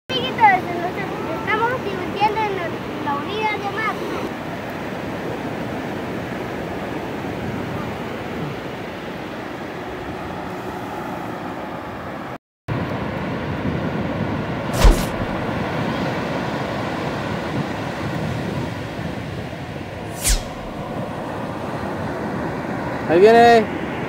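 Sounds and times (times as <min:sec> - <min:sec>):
ocean surf breaking: 0:14.4 - 0:17.8, 0:19.8 - 0:23.6
short sharp thump: 0:14.7 - 0:15.6, 0:20.1 - 0:21.0.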